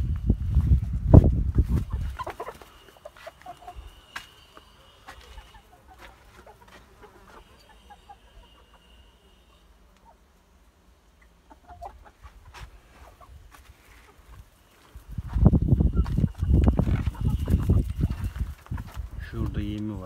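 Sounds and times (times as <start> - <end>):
chickens clucking: 0.2 - 20.0.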